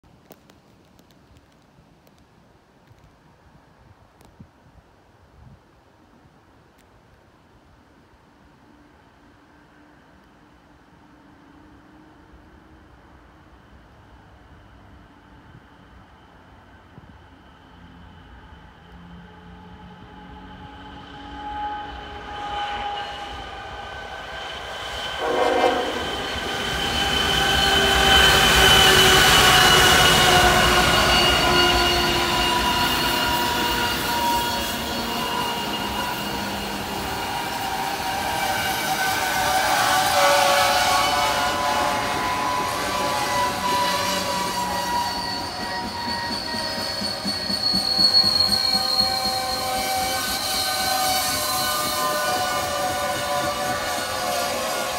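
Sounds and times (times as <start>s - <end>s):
train rumble: 8.8s - 54.9s
locomotive air horn chord: 25.2s - 46.8s, 48.8s - 54.9s.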